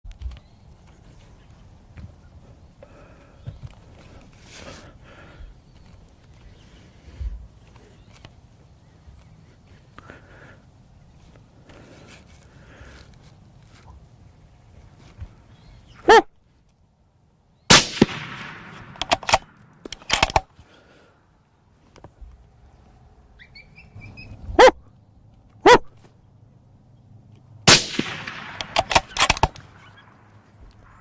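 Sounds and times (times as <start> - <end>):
short yelps: 15.9 - 16.3, 23.4 - 24.9, 25.6 - 25.9
rifle shots echoing: 17.7 - 20.5, 27.6 - 31.0
small clicks and knocks: 18.8 - 20.5.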